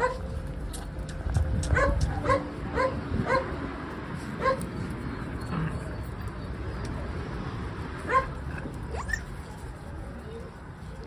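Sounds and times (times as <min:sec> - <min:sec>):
steady low rumble: 0:00.0 - 0:11.0
puppies yipping: 0:08.1 - 0:09.4.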